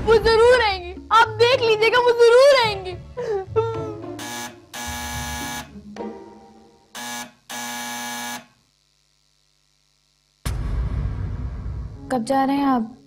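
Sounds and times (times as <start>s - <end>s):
harsh buzzing electronic blasts: 4.2s - 5.8s, 6.9s - 12.0s.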